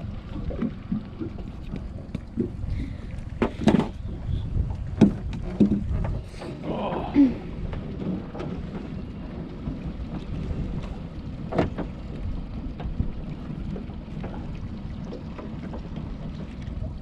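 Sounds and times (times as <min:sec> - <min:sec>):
water drips and splashes: 0:00.0 - 0:07.9, 0:12.8 - 0:17.0
wind buffeting microphone: 0:00.0 - 0:17.0
knocks on aluminium boat: 0:03.4 - 0:04.0, 0:04.8 - 0:06.2.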